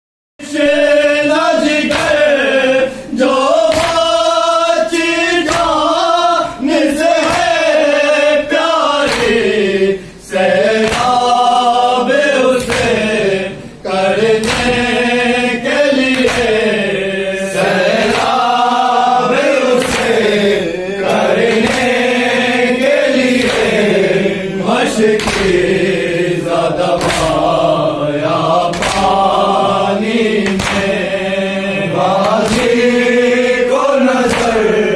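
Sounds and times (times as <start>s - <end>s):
men chanting a lament: 0.4s - 34.9s
hands slapping chests: 1.7s - 2.4s, 3.6s - 4.3s, 4.9s - 6.0s, 7.1s - 7.8s, 8.9s - 9.7s, 10.6s - 11.4s, 12.5s - 13.2s, 14.2s - 15.1s, 16.0s - 16.8s, 17.9s - 18.6s, 19.2s - 24.0s, 25.0s - 25.9s, 26.8s - 27.6s, 28.6s - 31.1s, 32.2s - 33.0s, 34.1s - 34.8s.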